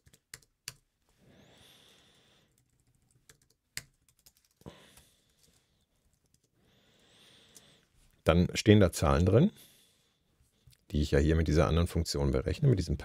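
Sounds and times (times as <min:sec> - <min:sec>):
computer keyboard keystrokes: 0:00.0 - 0:00.8, 0:02.5 - 0:04.7.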